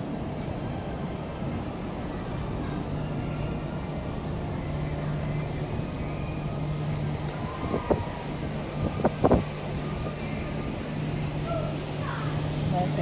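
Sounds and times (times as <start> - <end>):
ship machinery hum: 0.0 - 13.0
wind on microphone: 7.3 - 10.1.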